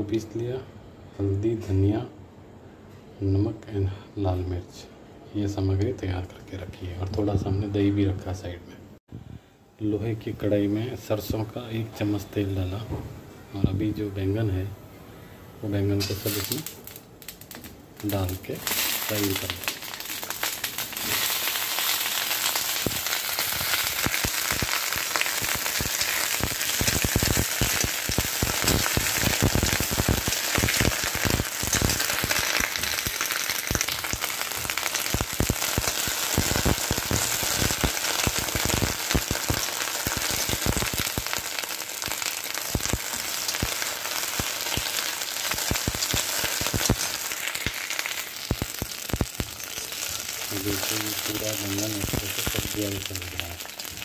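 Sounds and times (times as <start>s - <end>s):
vegetables sizzling in oil: 16.0s - 54.0s.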